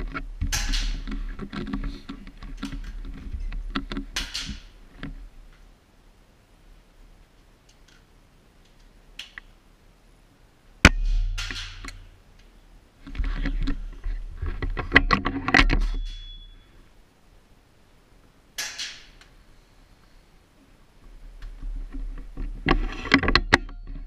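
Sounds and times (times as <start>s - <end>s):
air rifle shot: 10.8s - 11.8s
rifle clicking and rattling: 10.9s - 12.1s.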